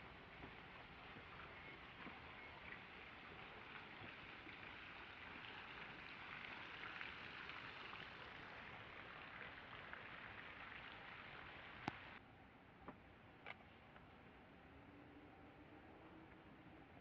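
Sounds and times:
water drops pattering: 0.0s - 12.2s.

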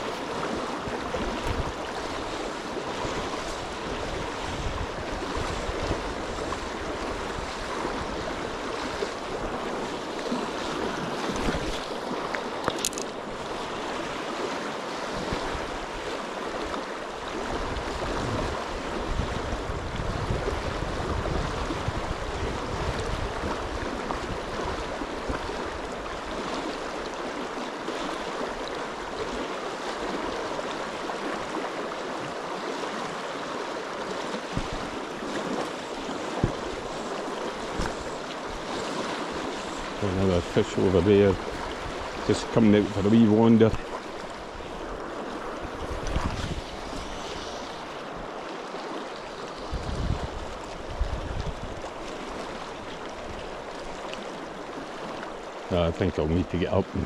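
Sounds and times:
wind buffeting microphone: 0.0s - 11.9s, 17.3s - 26.0s, 34.5s - 48.4s, 49.5s - 53.6s
river water rushing: 0.0s - 57.0s.

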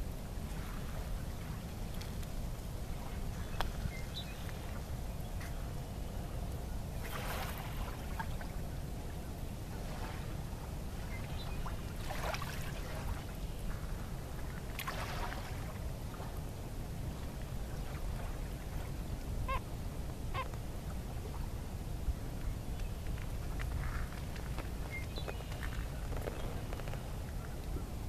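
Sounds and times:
water lapping against seawall: 6.8s - 28.0s
soft splashes: 7.0s - 8.6s, 11.0s - 13.4s, 14.4s - 16.4s.

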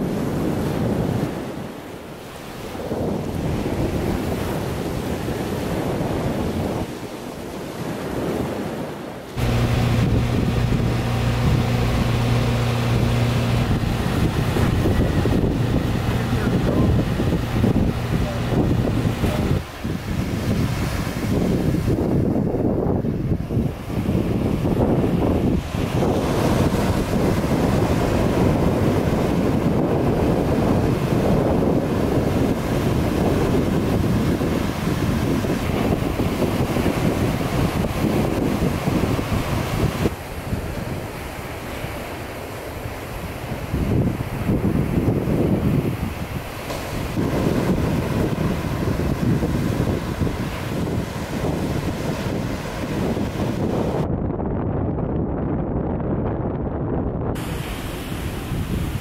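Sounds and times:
surf washing: 0.0s - 54.2s, 57.3s - 59.0s
wind buffeting microphone: 0.0s - 59.0s
boat engine humming: 9.4s - 22.6s, 23.2s - 54.0s.

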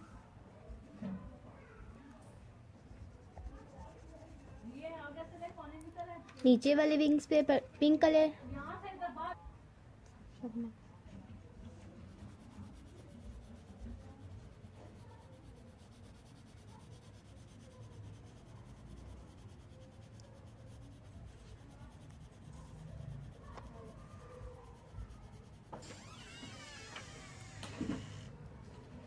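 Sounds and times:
pencil shading on paper: 2.8s - 5.0s, 11.1s - 26.2s.

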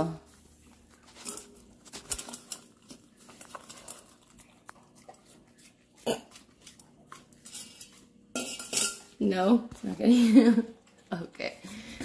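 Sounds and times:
puppy licking and chewing: 0.4s - 7.4s.

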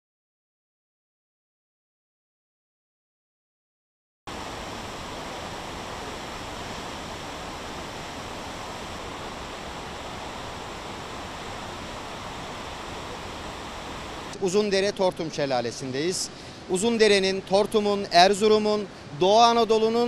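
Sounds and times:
waterfall rushing: 4.3s - 20.0s.

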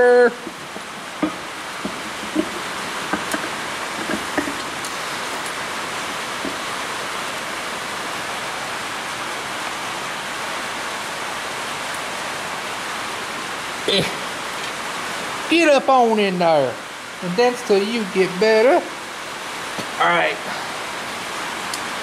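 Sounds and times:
rain drumming on a tin roof: 0.0s - 22.0s
light clicks and knocks: 0.4s - 5.0s.

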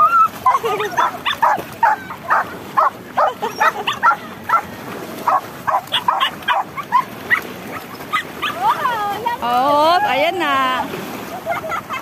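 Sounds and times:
dogs barking in high yips: 0.0s - 4.7s, 5.3s - 8.8s.

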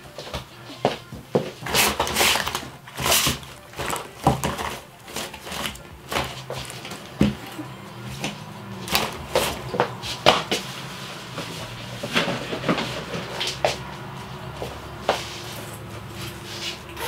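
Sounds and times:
cloth rustling: 0.0s - 17.0s
small items clattering together: 1.6s - 7.4s.

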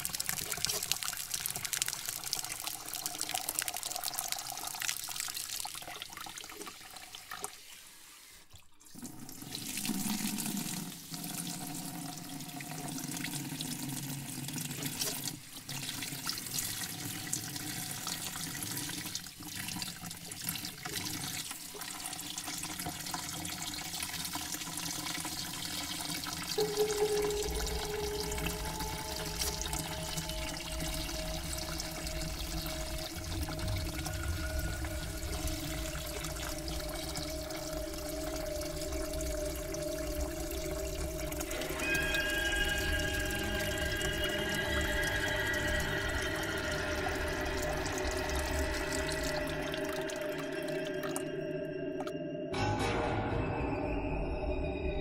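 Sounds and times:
shower water running: 0.0s - 51.2s
low rumble: 26.6s - 50.5s.

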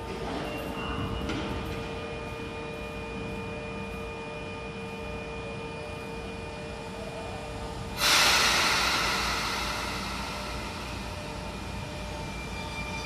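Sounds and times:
electric train humming: 2.0s - 13.0s
compressed air hiss: 8.0s - 11.8s.

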